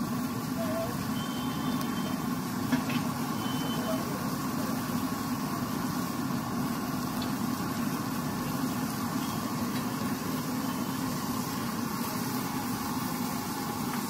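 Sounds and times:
low hum with broad hiss: 0:00.0 - 0:14.0.

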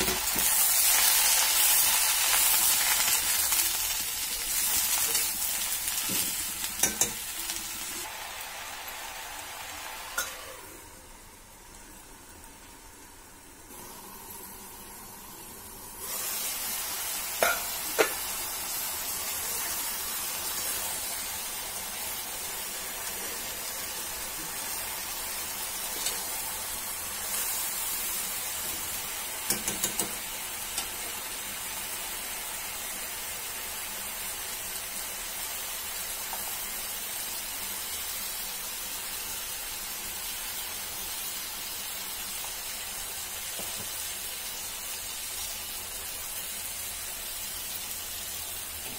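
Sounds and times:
vegetables sizzling in pan: 0:00.0 - 0:48.9
spatula tapping pan: 0:29.5 - 0:30.2.

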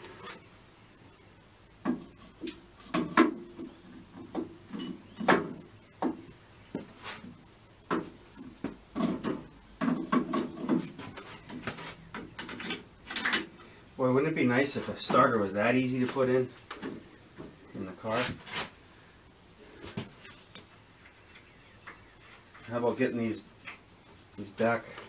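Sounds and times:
metal parts and tools knocking: 0:12.1 - 0:13.5.

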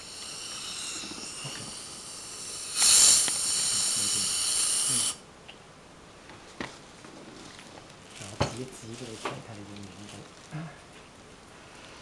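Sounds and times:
dental equipment hissing: 0:00.0 - 0:05.3.

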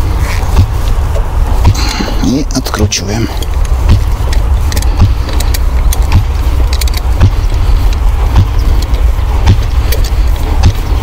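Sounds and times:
loud low rumble: 0:00.0 - 0:11.0.

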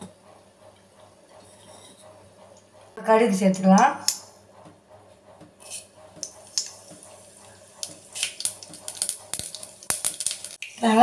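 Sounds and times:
mustard seeds sizzling in hot oil: 0:06.4 - 0:11.0
seeds popping and crackling: 0:08.2 - 0:10.8.

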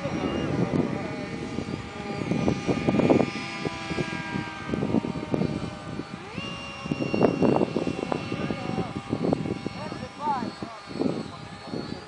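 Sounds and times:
model airplane motor whining: 0:00.0 - 0:12.0.

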